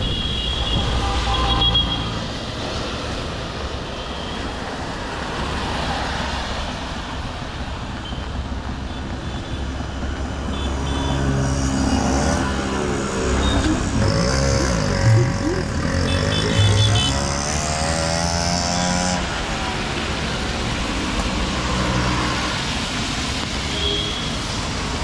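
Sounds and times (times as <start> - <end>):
tyre noise on wet road: 0.0 - 25.0
vehicle engines: 0.0 - 25.0.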